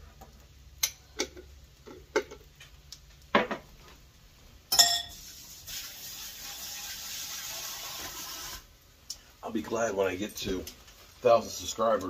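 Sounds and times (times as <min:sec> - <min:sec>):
metallic clank with ring: 0:04.7 - 0:05.1
glass jar and utensils clinking: 0:04.7 - 0:05.2
faucet running water: 0:05.0 - 0:08.7.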